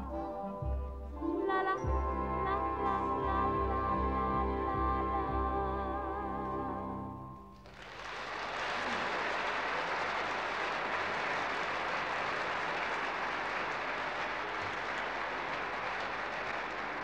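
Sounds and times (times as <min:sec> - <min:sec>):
audience applause: 0:07.6 - 0:17.0.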